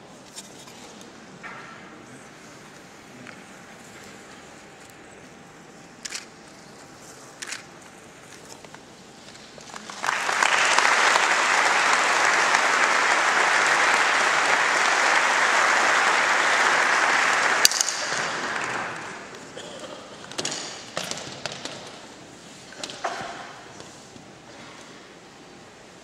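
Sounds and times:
audience applauding: 0:09.6 - 0:19.6.

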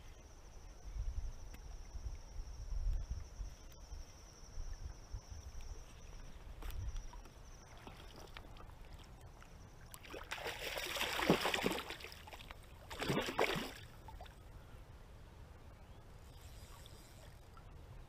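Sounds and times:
water splashing: 0:10.0 - 0:14.4.

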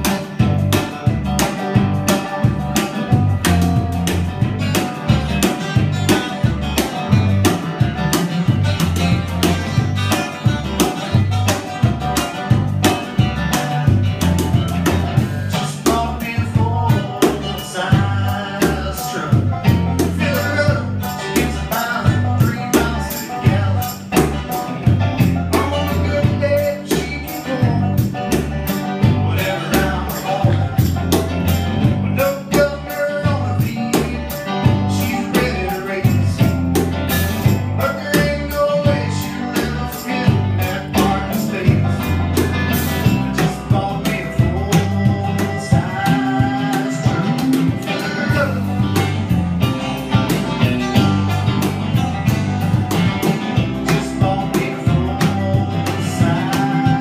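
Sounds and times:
bass line: 0:00.0 - 0:57.0
electric guitars: 0:00.0 - 0:57.0
percussion beat: 0:00.0 - 0:57.0
man singing: 0:15.2 - 0:49.4, 0:50.0 - 0:57.0.

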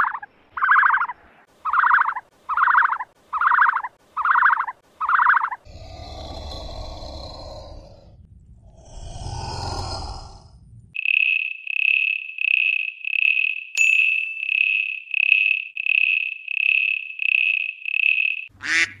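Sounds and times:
insect chirping: 0:00.0 - 0:07.8, 0:11.0 - 0:13.8, 0:14.4 - 0:18.8
duck quacking: 0:18.6 - 0:19.0.

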